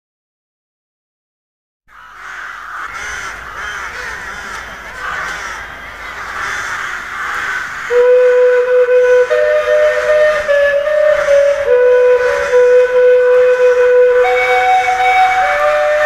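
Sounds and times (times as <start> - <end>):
chorus of bird calls: 1.9 - 16.0
higher whistle-like tone: 7.9 - 16.0
loud steady whistle-like tone: 7.9 - 16.0.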